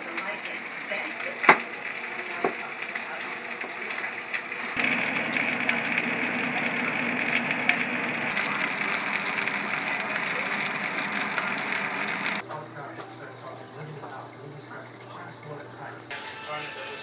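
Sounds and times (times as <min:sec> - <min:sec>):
fish sizzling in hot oil: 0:00.0 - 0:12.4.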